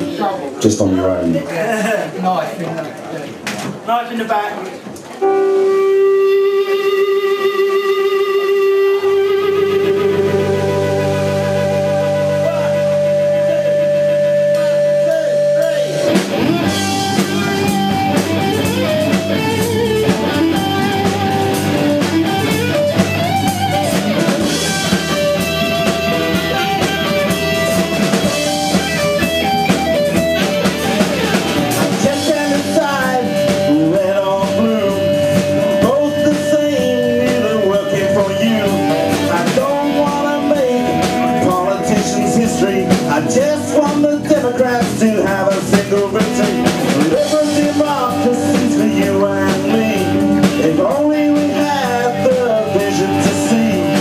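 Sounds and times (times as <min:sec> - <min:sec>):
punk-pop band playing: 0:00.0 - 0:54.0
electric guitars: 0:04.6 - 0:54.0
drum kit: 0:04.8 - 0:54.0.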